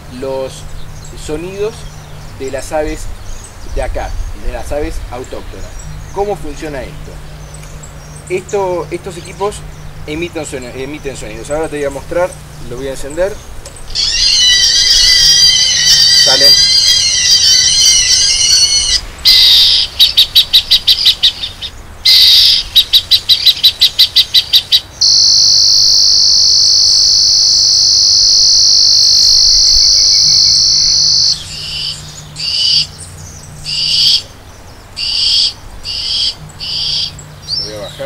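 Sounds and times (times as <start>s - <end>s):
electronic bird-scaring sounds: 13.9s - 33.0s, 33.6s - 34.3s, 35.0s - 37.2s.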